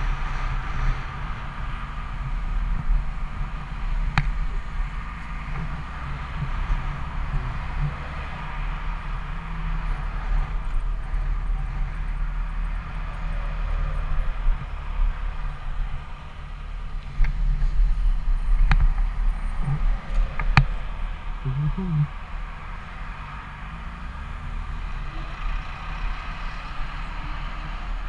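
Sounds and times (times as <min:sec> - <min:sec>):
motorcycle engine rumble: 0:00.0 - 0:28.0
rushing wind: 0:00.0 - 0:28.0.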